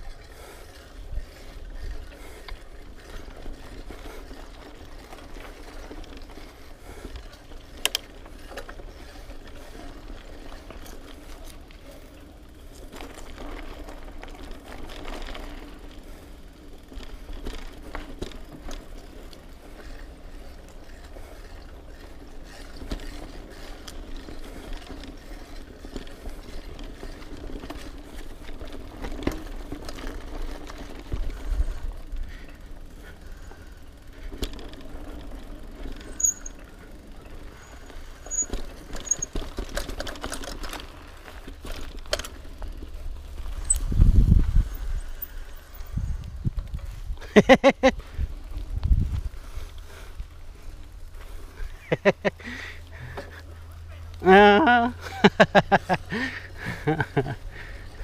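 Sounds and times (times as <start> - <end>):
bike freewheel ratcheting: 0.0 - 53.5
tyre noise on dirt: 0.1 - 58.0
chain and frame rattle: 34.4 - 36.6, 37.6 - 42.4.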